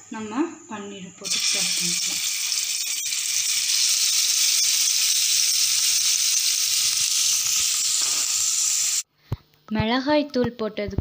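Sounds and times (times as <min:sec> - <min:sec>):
food sizzling in hot oil: 0:01.2 - 0:09.1.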